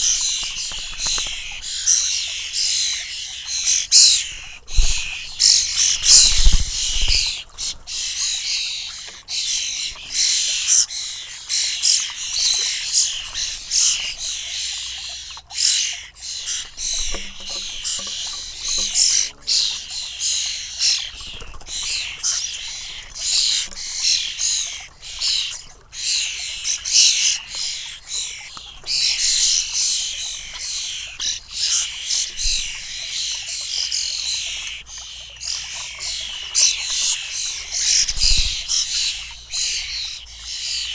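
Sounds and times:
fledglings begging calls: 0.0s - 40.9s.

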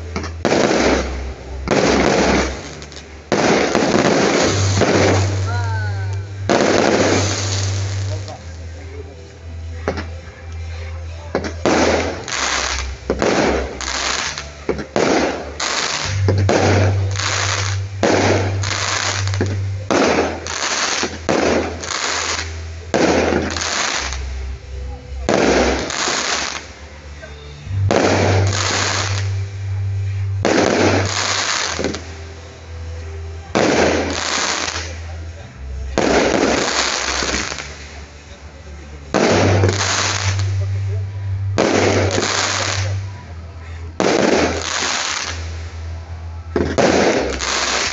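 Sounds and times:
fireworks bangs: 0.1s - 8.8s, 11.4s - 32.3s, 32.9s - 38.3s, 39.0s - 43.1s, 44.0s - 47.9s
firework launch hiss: 0.4s - 8.4s, 11.6s - 24.4s, 27.8s - 29.3s, 30.0s - 32.1s, 36.0s - 38.0s, 39.1s - 41.0s, 46.6s - 47.9s
firework shells bursting: 46.6s - 47.9s.

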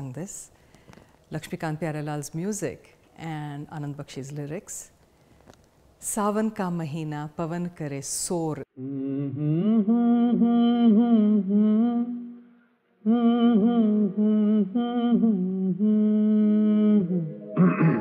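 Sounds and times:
person humming a melody: 8.7s - 18.0s.

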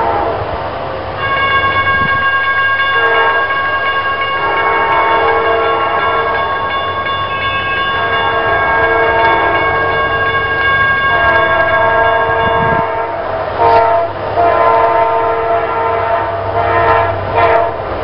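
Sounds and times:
locomotive air horn: 0.0s - 0.5s, 3.0s - 3.5s, 4.4s - 6.4s, 8.0s - 10.1s, 11.1s - 17.8s
train rumbling: 0.0s - 18.0s.

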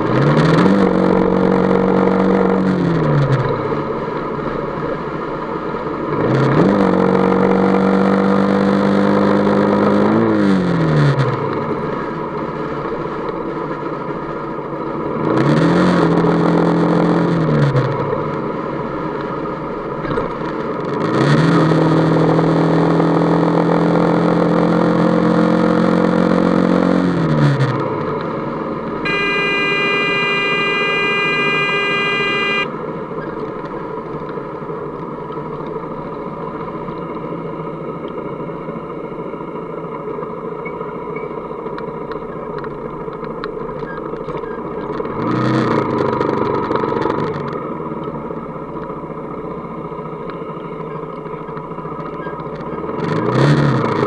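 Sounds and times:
road and wind noise: 0.0s - 54.0s
steady horn: 29.0s - 32.7s.

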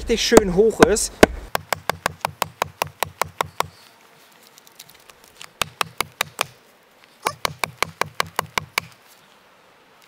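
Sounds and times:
wooden mallet knocking wedge: 7.3s - 8.9s.

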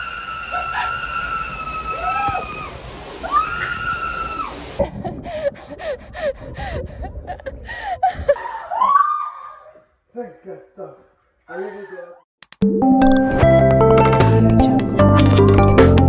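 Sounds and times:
person shrieking: 0.0s - 4.7s.

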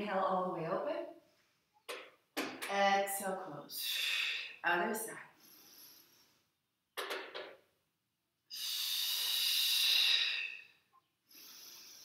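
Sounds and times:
person breathing audibly: 5.3s - 6.6s, 8.5s - 12.0s.

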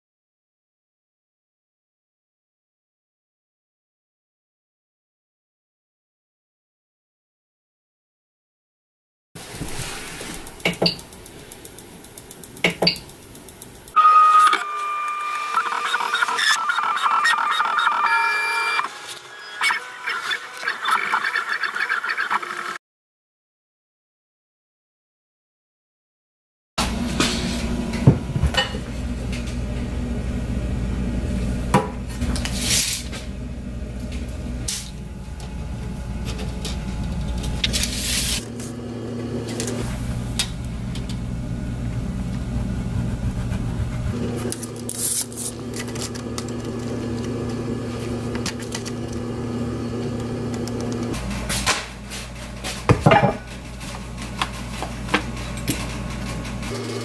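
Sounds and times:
steady low hum: 27.0s - 56.9s.

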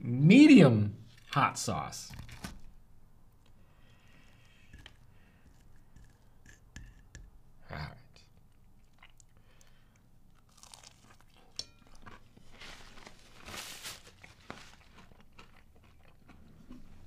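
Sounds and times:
faint chewing: 3.4s - 6.6s, 8.4s - 13.2s, 14.0s - 17.0s
paper napkin rustling: 12.4s - 15.0s.

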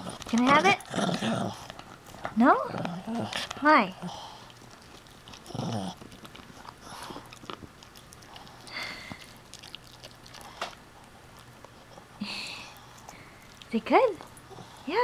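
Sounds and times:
puppy low vocal sound: 0.0s - 1.7s, 2.4s - 6.2s
puppy chewing toy: 0.0s - 15.0s.

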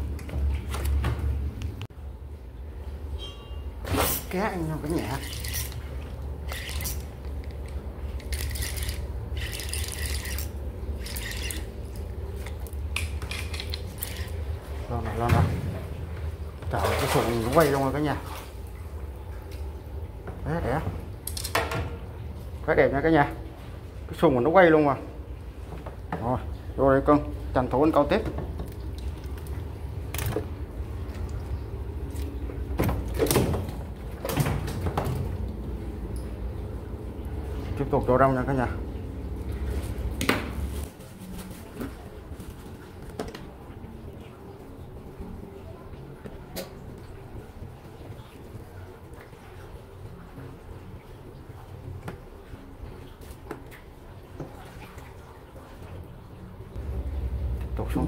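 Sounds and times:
steady low hum: 0.0s - 58.0s
fishing reel ratchety whirring: 8.3s - 11.6s
steady low rumble: 56.7s - 58.0s.

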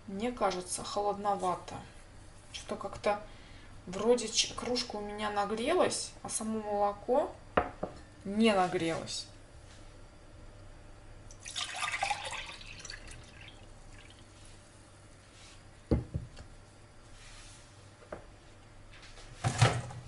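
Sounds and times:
milk splashing while poured: 11.3s - 14.4s.

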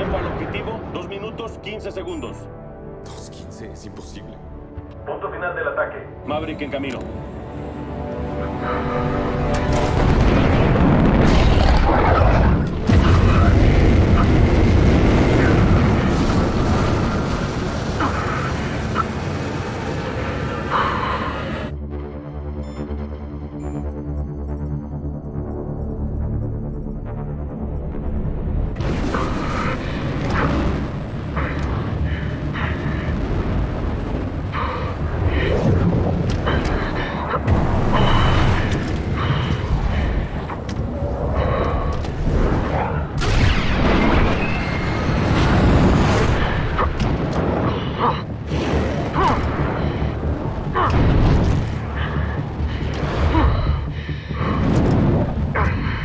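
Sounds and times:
music: 0.0s - 56.0s
fighter jet engine: 8.8s - 21.7s, 28.8s - 56.0s.

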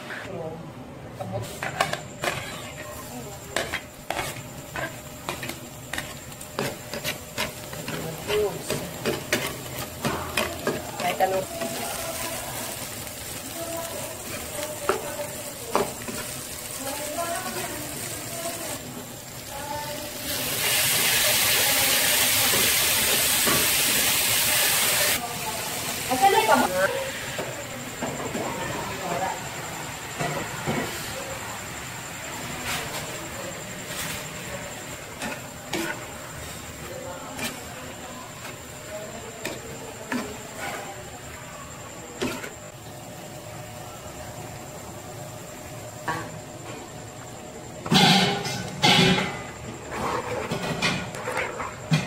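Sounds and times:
onions frying in a wok: 0.0s - 52.0s
loud sizzling hiss: 5.5s - 27.4s.

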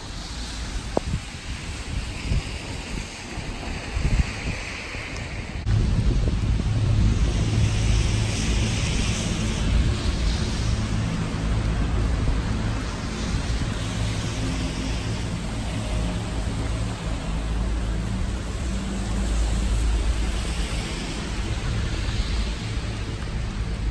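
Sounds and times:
rain on stone paving: 0.0s - 23.9s
heavy low rumble: 5.6s - 23.9s.

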